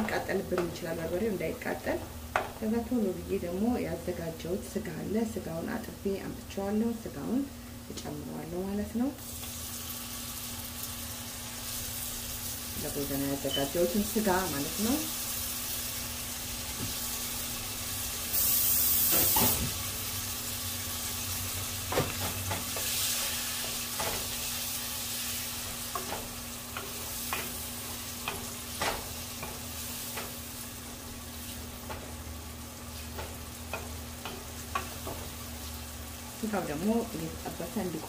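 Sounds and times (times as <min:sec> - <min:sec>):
meat sizzling in hot oil: 0:09.2 - 0:38.0.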